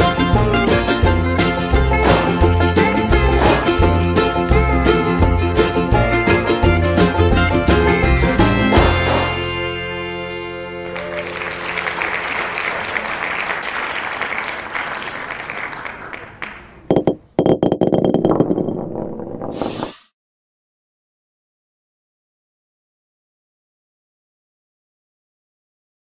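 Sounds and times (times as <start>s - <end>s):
sharp knocks: 2.0s - 2.5s, 16.8s - 18.8s
country song chord ringing: 9.0s - 11.0s
crowd applauding and cheering: 10.5s - 17.2s.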